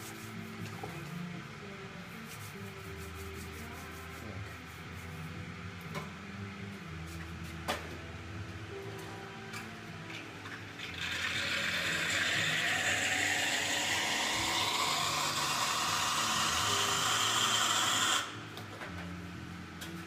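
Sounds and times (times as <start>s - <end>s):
steam wand hissing: 10.9s - 18.4s.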